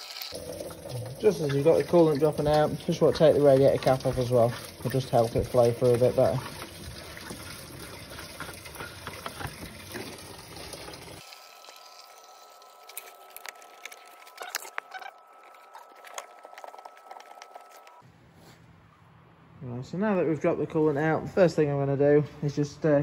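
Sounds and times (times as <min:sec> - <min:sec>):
coolant splashing into tray: 0:00.1 - 0:11.4
scattered drips: 0:00.3 - 0:11.7.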